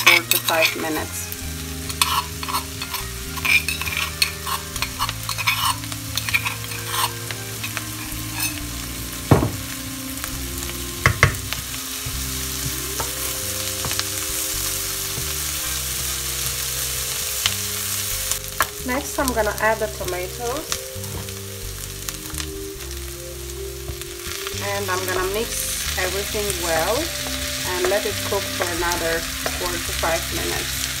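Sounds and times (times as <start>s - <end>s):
onions sizzling in a wok: 0.0s - 31.0s
wooden spoon scraping and stirring: 1.9s - 8.6s.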